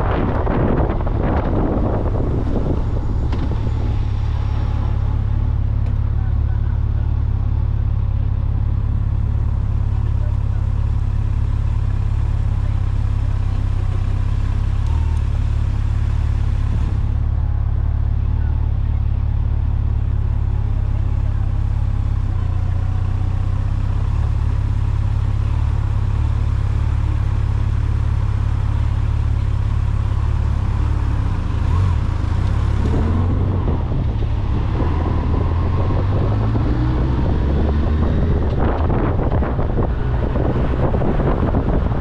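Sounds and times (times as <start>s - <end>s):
wind buffeting on microphone: 0.0s - 5.3s, 32.7s - 42.0s
vehicle engine and road rumble: 0.0s - 42.0s.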